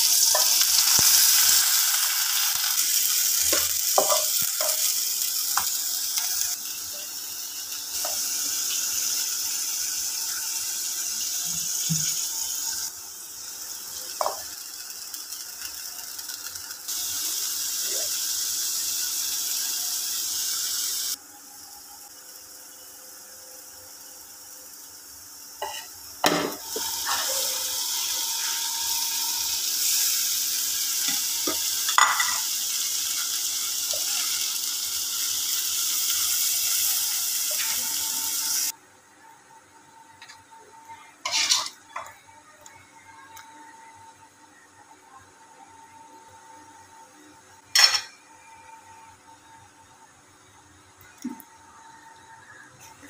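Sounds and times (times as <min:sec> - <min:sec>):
chicken sizzling in oil: 0:00.0 - 0:38.8
spatula scraping pan: 0:41.2 - 0:41.8.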